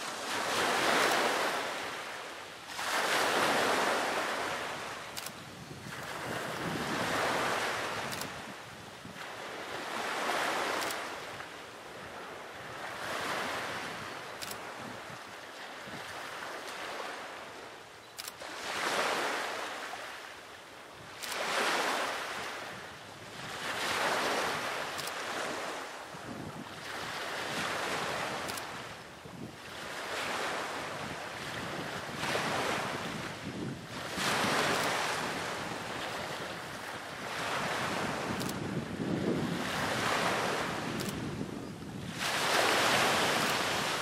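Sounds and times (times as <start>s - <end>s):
sea waves washing in: 0.0s - 17.8s, 18.4s - 44.0s.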